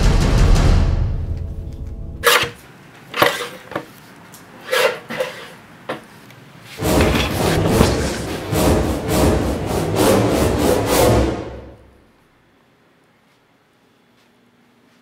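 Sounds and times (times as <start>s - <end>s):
dramatic music with drum hits: 0.0s - 2.2s, 6.8s - 11.9s
sharp knocks and clunks: 6.8s - 8.5s.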